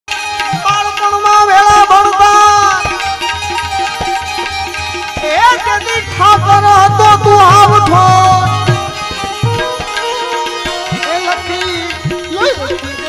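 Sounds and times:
folk melody: 0:00.1 - 0:13.0
drum strokes: 0:02.8 - 0:12.2.

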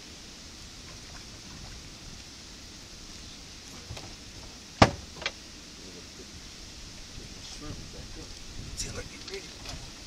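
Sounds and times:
sharp knocks: 0:04.8 - 0:05.3.

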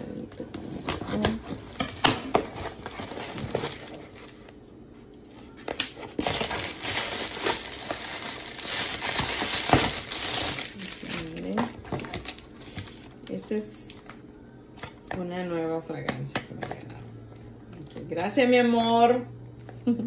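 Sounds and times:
packaging crinkling and rustling: 0:00.8 - 0:04.6, 0:05.2 - 0:13.4.

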